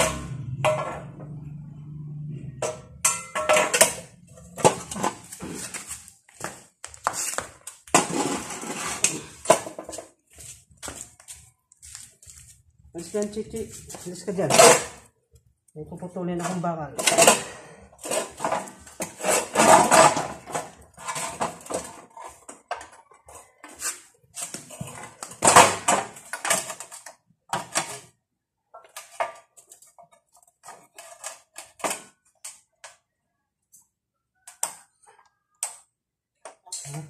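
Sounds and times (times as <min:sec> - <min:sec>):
steel tube clanking on metal: 0:02.6 - 0:05.3.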